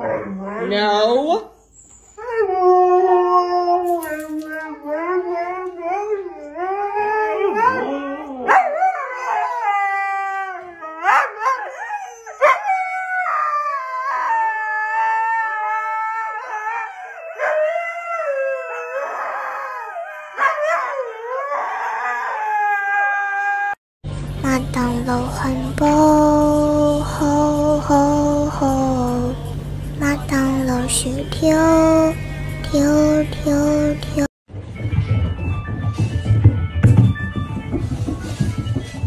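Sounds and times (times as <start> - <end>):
husky howling: 2.2 - 23.8.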